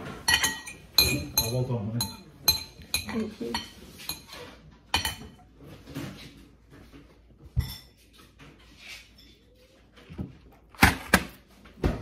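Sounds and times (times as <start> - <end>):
fork clinking against a bowl: 0.3 - 5.4.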